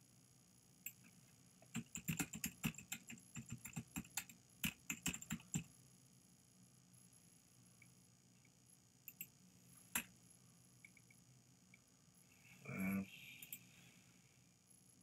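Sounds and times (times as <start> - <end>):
typing on computer keyboard: 1.6 - 5.7.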